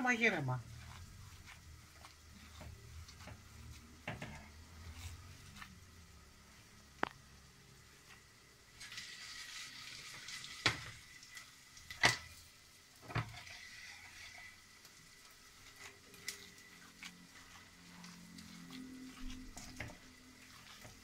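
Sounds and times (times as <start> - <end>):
hand squelching wet meat mixture: 0.0 - 7.0, 14.0 - 21.0.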